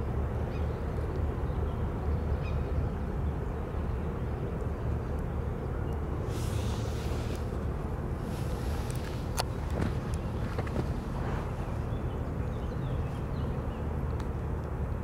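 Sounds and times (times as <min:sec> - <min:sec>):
ship engine rumble: 0:00.0 - 0:15.0
short hiss: 0:06.3 - 0:07.6.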